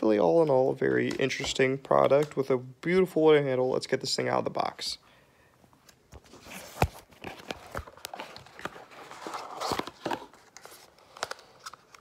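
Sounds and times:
box rustling: 6.2s - 12.0s.

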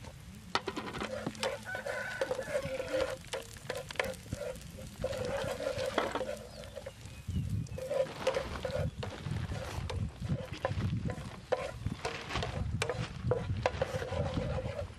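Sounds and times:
wooden spatula scraping frying pan: 0.0s - 14.9s.

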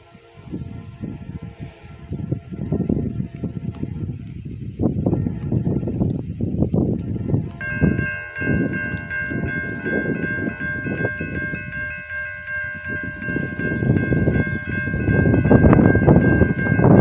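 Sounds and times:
gusty low rumble: 0.5s - 17.0s
crossing warning bell ringing: 7.5s - 17.0s.

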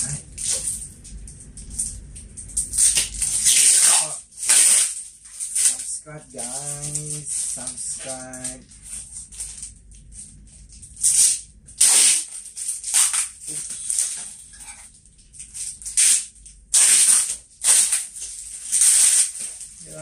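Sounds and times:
plastic crinkling and ripping: 0.0s - 20.0s
box cutter slitting tape: 2.6s - 5.8s, 11.0s - 14.2s, 15.9s - 20.0s.

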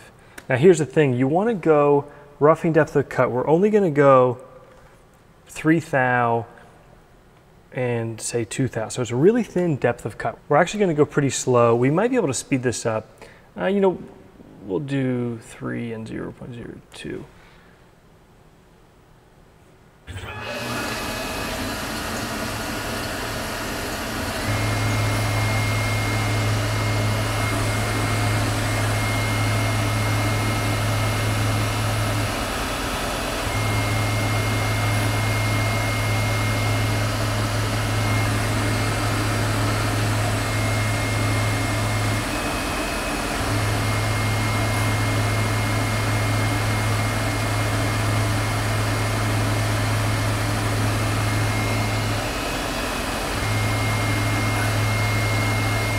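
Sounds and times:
lathe humming with high whine: 20.1s - 55.9s.

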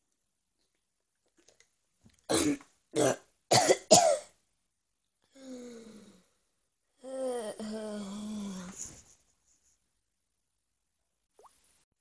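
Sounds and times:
person coughing hard: 2.3s - 4.3s.

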